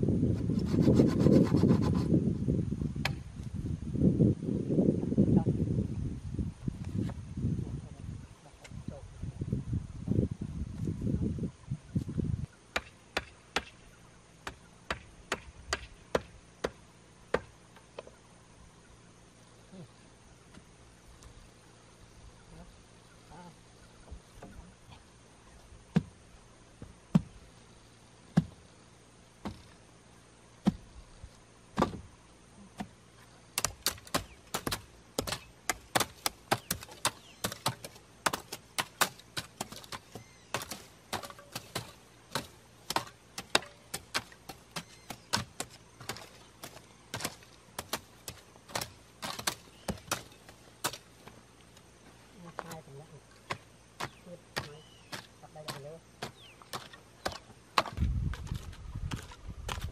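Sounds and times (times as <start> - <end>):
hand tools striking wood and earth: 3.0 - 3.3, 12.7 - 13.8, 14.4 - 18.2, 25.9 - 26.2, 26.8 - 27.4, 28.2 - 28.7, 29.4 - 29.8, 30.6 - 30.9, 31.7 - 59.9.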